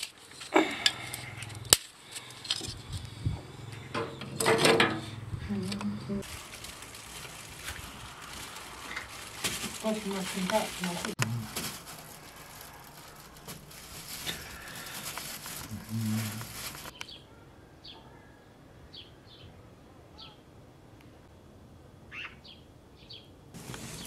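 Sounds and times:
wooden sticks rustling and knocking: 0:00.0 - 0:17.0
small birds chirping: 0:14.1 - 0:20.4.

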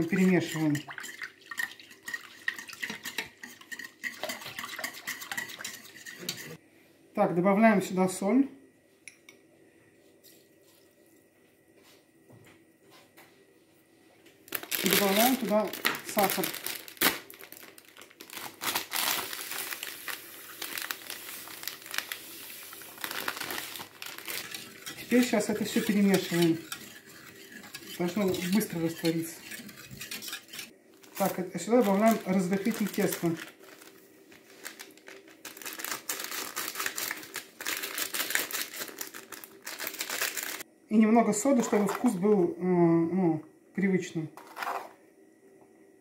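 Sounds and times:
plastic bag crinkling: 0:14.5 - 0:26.8, 0:31.0 - 0:40.6
sugar pouring into pot: 0:19.1 - 0:34.0.

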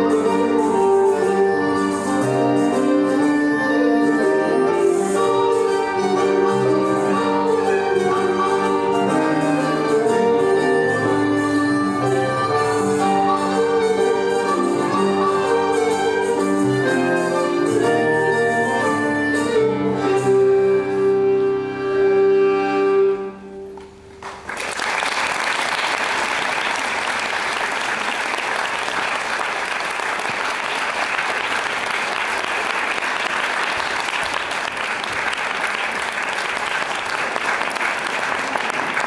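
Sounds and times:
instrumental dance music: 0:00.0 - 0:20.6
audience applause: 0:24.2 - 0:39.0.

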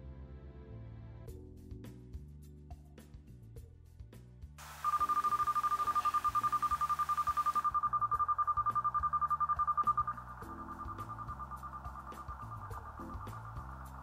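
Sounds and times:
fast pulsing high electronic beep: 0:04.6 - 0:14.0.

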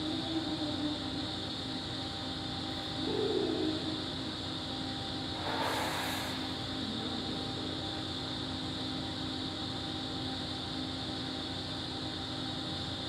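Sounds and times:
air handling drone: 0:05.2 - 0:07.6.

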